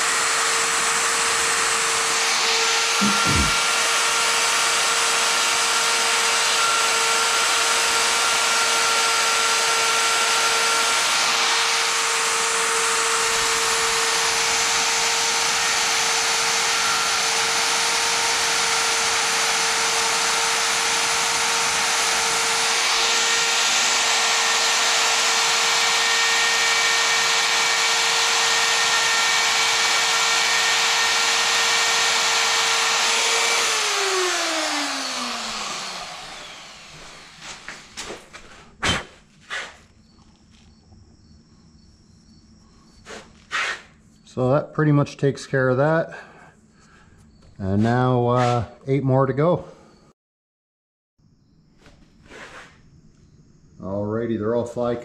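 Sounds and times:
die grinder whining: 0.0 - 40.4.

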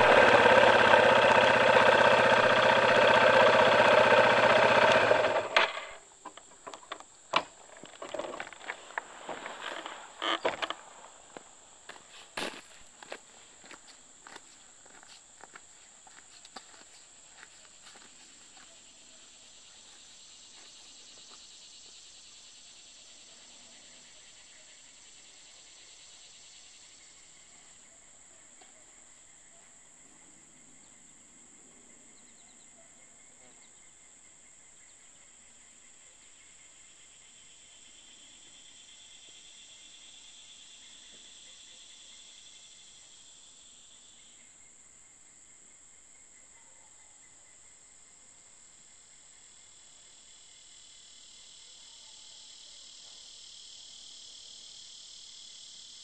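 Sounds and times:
lower insect buzzing chorus: 49.4 - 56.0.

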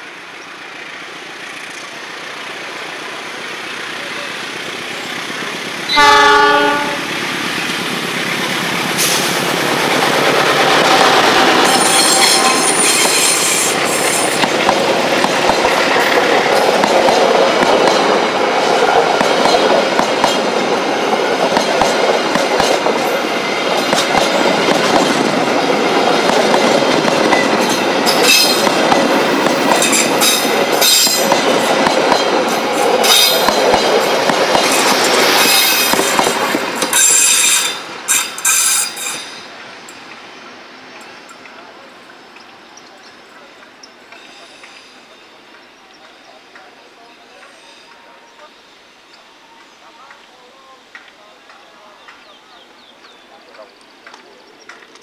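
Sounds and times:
train clanks and clatter: 0.0 - 40.3, 40.9 - 48.5, 50.9 - 55.0
train wheels rumbling: 0.0 - 48.4
locomotive horn blast: 5.9 - 7.1.

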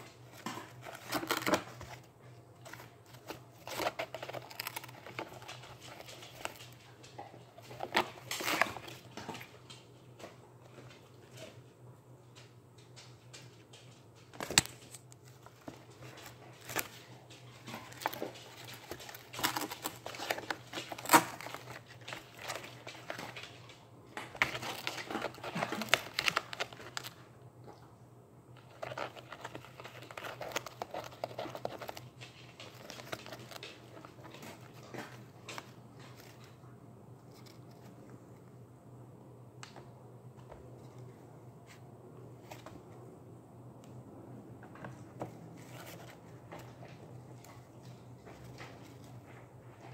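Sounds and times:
cardboard crinkling and tearing: 0.0 - 6.8, 7.5 - 9.4, 14.4 - 27.2, 28.6 - 36.6
kitten chewing cardboard: 0.0 - 11.6, 14.3 - 27.3, 28.5 - 38.2.

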